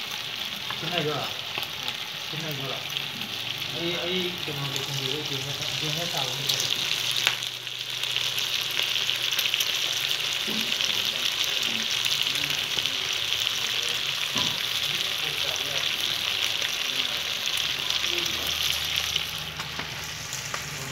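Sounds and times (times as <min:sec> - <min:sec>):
meat sizzling in a pan: 0:00.0 - 0:20.9.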